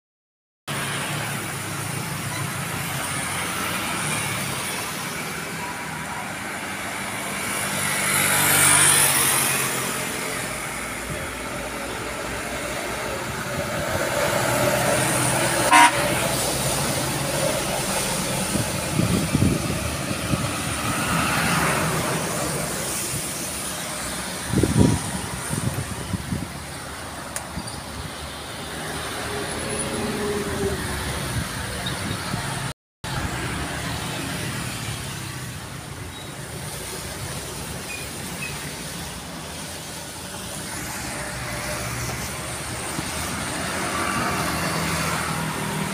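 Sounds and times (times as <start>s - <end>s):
motorcycle and truck engines: 0.7s - 45.9s
short horn toot: 15.6s - 16.2s
tyre hiss on wet road: 33.8s - 45.9s.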